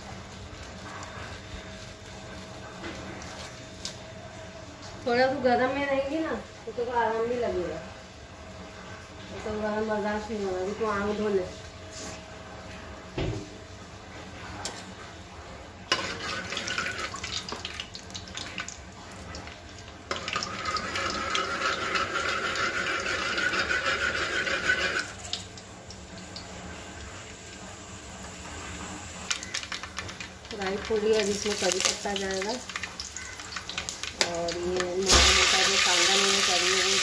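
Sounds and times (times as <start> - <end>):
seeds sizzling in hot oil: 0.0 - 4.0, 15.9 - 37.0.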